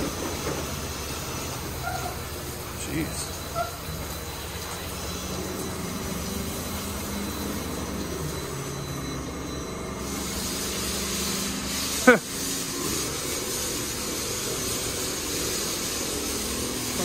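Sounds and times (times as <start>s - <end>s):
car wash machine hum: 0.0s - 17.0s
hiss: 10.0s - 17.0s.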